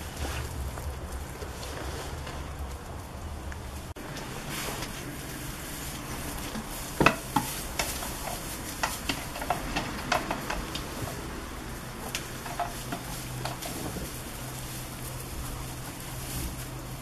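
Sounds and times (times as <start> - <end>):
hooves knocking on wooden stool: 6.4 - 14.5.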